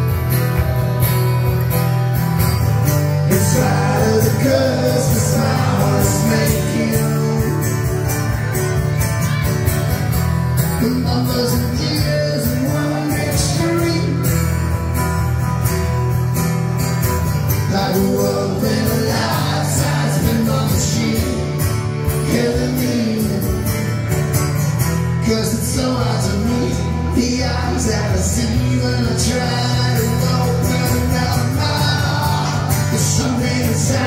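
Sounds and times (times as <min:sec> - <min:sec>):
live rock band: 0:00.0 - 0:34.0
man singing: 0:03.2 - 0:08.4, 0:10.6 - 0:14.8, 0:17.6 - 0:24.1, 0:25.0 - 0:34.0.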